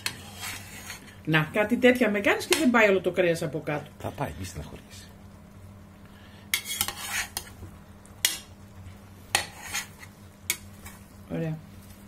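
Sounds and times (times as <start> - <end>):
metal ladle scraping a pot: 0.0 - 1.2, 6.5 - 7.6, 9.3 - 11.0
steady low hum: 0.0 - 12.0.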